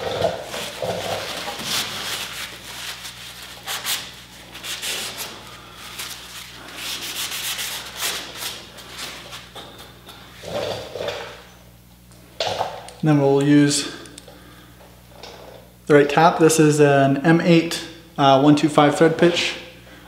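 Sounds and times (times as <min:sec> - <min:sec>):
cloth rag rubbing on metal: 0:00.4 - 0:09.5.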